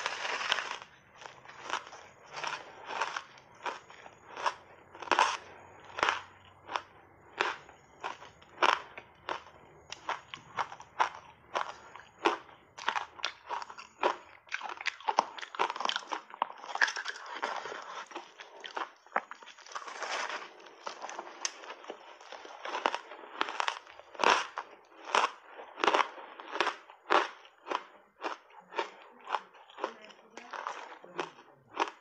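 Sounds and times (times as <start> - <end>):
ice being crunched: 0.0 - 5.4, 19.5 - 22.0.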